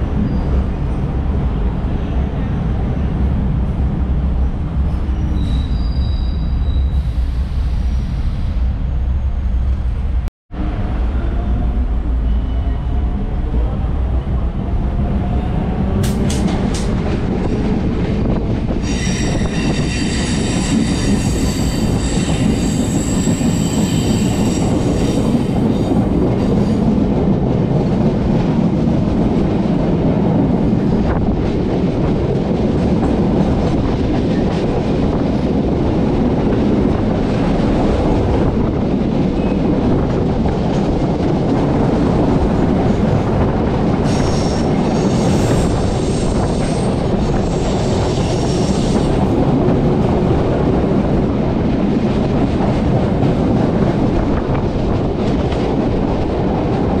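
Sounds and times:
electric train rumbling: 0.0s - 57.0s
high wheel squeal: 5.2s - 8.1s, 18.8s - 25.4s.

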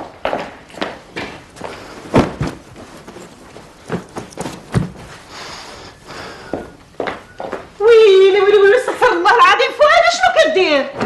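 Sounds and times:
footsteps on hard floor: 0.0s - 7.9s
cloth rustling: 0.8s - 8.0s
bag thumping on table: 2.1s - 3.3s, 3.9s - 5.1s.

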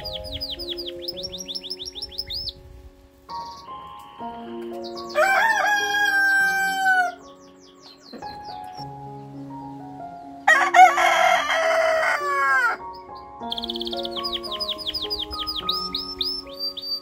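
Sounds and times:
canary chirping: 0.0s - 2.7s, 3.3s - 8.9s, 12.8s - 17.0s
soft background music: 0.0s - 17.0s
rooster crowing: 5.0s - 7.3s, 10.5s - 12.8s.

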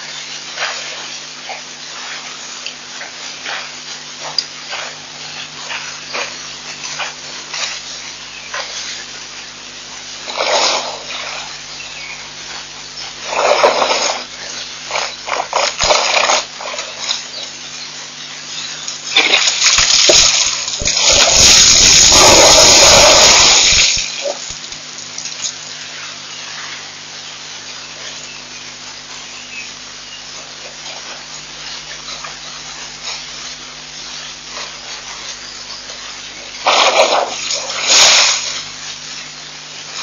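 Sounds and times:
loud gush of water: 19.1s - 24.6s, 36.6s - 38.9s
elephant drinking water: 36.4s - 38.8s.

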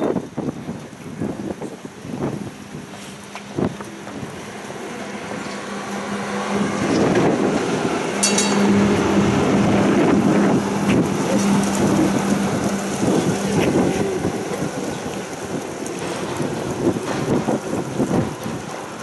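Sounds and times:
tram wheels rumbling: 0.0s - 19.0s
low motor hum: 2.1s - 19.0s
high-pitched ring: 8.2s - 8.8s.

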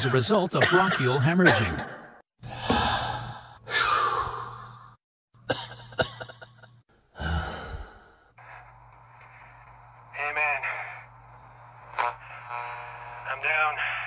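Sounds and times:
man gasping for breath: 7.1s - 8.3s.

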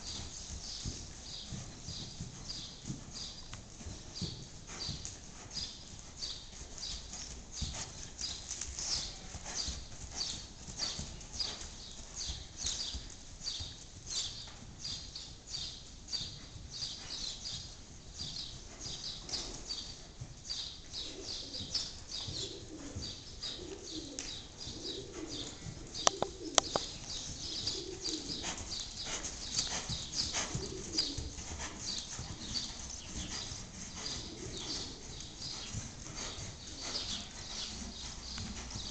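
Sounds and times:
hooves on sand: 0.0s - 20.4s, 21.0s - 38.9s
pigeon cooing: 22.3s - 28.6s, 29.8s - 31.4s, 34.0s - 35.4s
sharp clicks: 26.1s - 26.9s.

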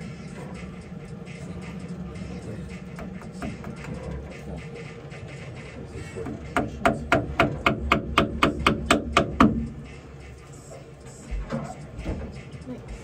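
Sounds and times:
steady low hum: 0.0s - 13.0s
hammer striking rapidly: 6.2s - 9.9s.

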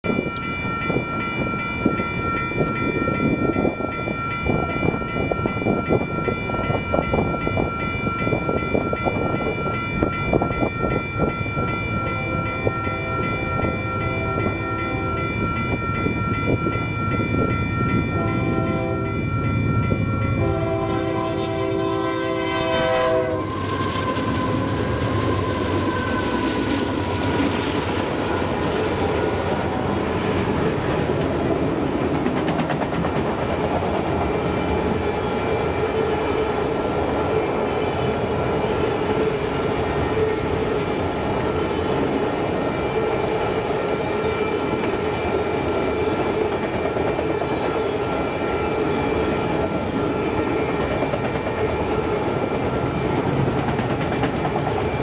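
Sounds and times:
train wheels clattering on rails: 0.1s - 55.0s
locomotives rumbling past: 11.9s - 35.1s
locomotive air horn: 18.2s - 19.1s, 20.4s - 26.6s.

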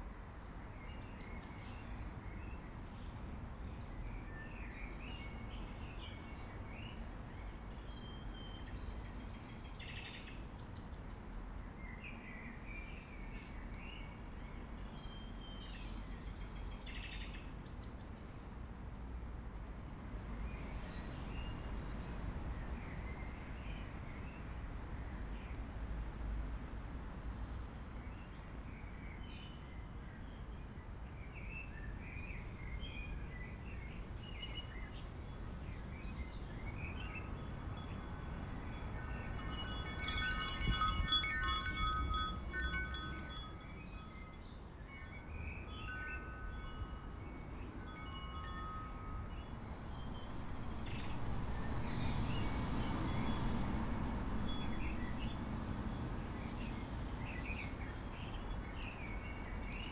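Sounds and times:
birds chirping: 38.7s - 51.2s
metal wind chime ringing: 38.8s - 44.4s, 45.3s - 51.0s.

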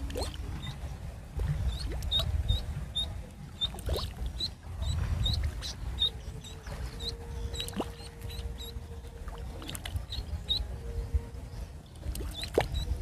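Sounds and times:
low water splashing: 0.0s - 13.0s
duckling peeping: 1.6s - 8.8s, 9.8s - 10.7s, 12.3s - 13.0s.

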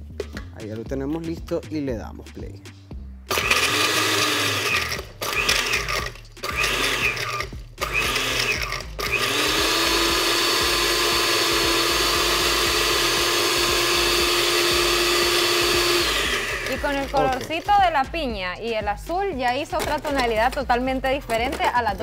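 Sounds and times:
blender motor running: 3.3s - 17.5s.

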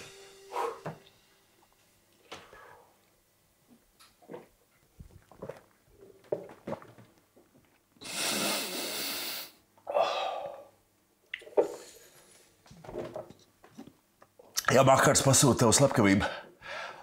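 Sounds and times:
man exhaling hard: 8.0s - 10.7s
grunt of breath: 9.9s - 10.7s.

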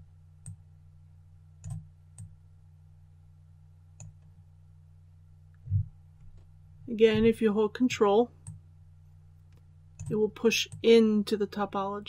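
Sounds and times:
low electrical hum: 0.0s - 12.0s
computer mouse clicks: 1.6s - 2.4s, 4.0s - 4.4s, 8.4s - 8.6s, 9.4s - 11.0s.

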